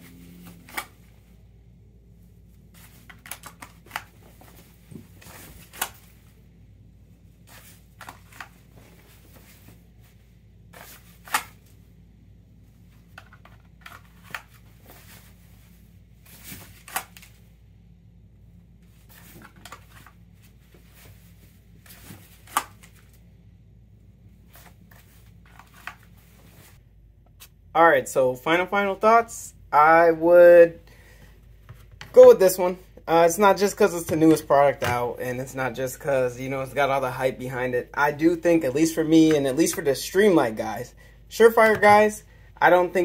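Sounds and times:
shirt fabric rustling: 2.2 - 11.8, 12.8 - 17.6, 18.7 - 23.4, 24.2 - 27.6
plastic holster clicks and snaps: 11.2 - 11.6.

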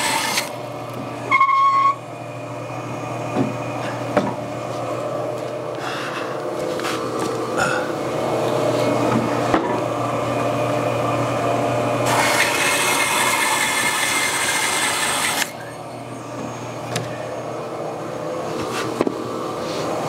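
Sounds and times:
saw blade cutting wood: 0.0 - 0.6, 12.0 - 15.7
bandsaw running: 0.0 - 1.5, 5.9 - 16.3.

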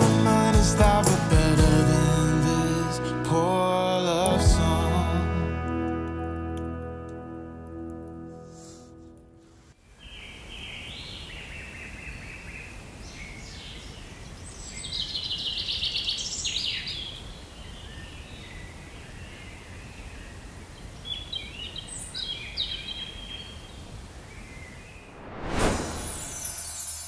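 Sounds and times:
birds singing and trilling: 10.0 - 25.1.

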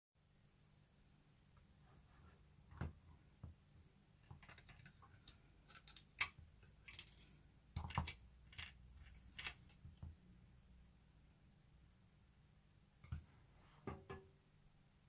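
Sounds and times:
miniature kitchen pieces clicking: 4.2 - 10.0.

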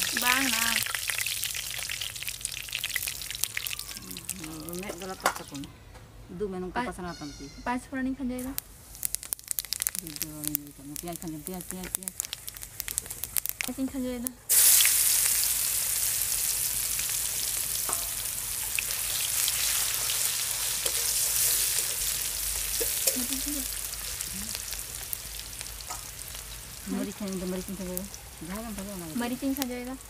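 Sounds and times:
food sizzling in hot oil: 0.0 - 5.7, 7.0 - 30.0
spatula stirring in a wok: 14.5 - 26.9.

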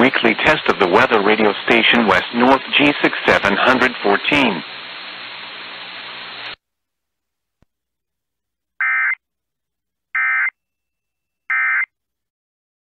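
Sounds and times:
radio hiss: 0.0 - 6.6
buzzing digital data tones: 8.8 - 9.2, 10.2 - 10.5, 11.5 - 11.9.

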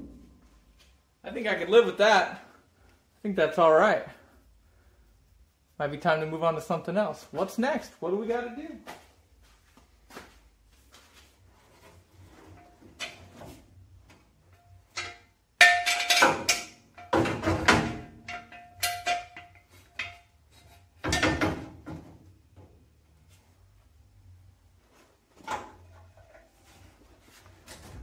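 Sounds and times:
metal jack stand clanking: 14.9 - 20.3.

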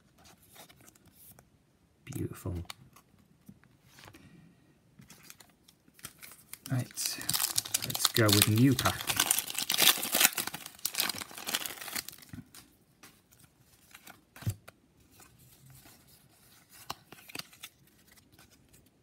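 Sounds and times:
plastic wrapper tearing and crinkling: 5.1 - 12.7, 16.8 - 18.5.

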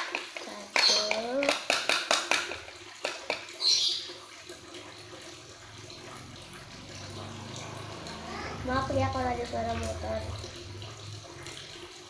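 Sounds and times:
motorbike engine hum: 5.9 - 11.5.

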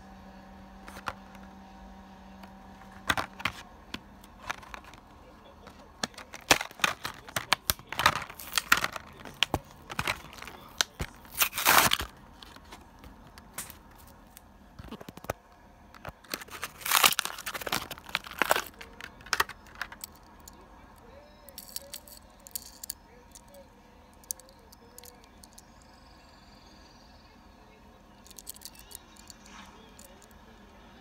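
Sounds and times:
plastic blister pack crackling: 5.7 - 15.3, 16.0 - 20.2
cardboard tearing: 9.9 - 12.1, 16.2 - 18.7.

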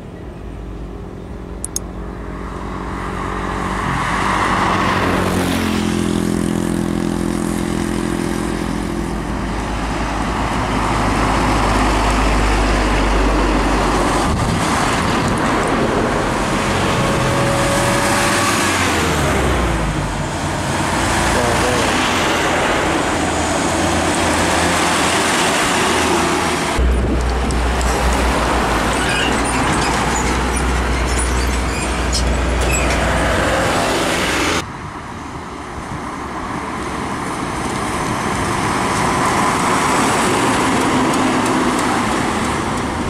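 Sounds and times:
tyres and road noise: 0.0 - 43.0
diesel truck engine passing: 1.5 - 35.3.

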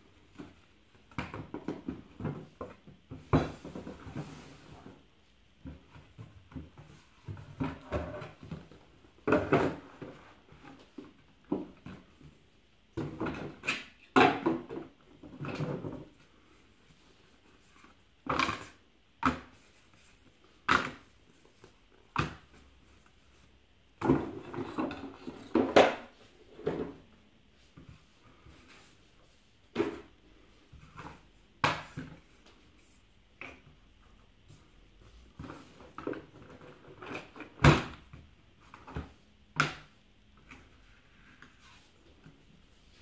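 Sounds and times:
cardboard boards knocking and sliding: 0.3 - 5.0.

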